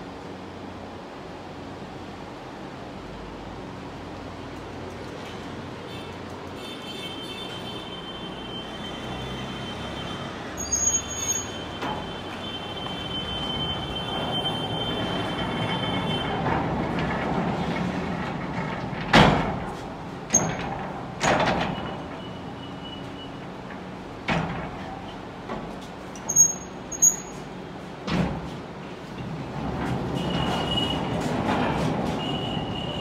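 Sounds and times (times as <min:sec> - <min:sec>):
short high squeals: 0:07.9 - 0:14.8, 0:26.3 - 0:27.5
mechanical rumble: 0:11.6 - 0:33.0.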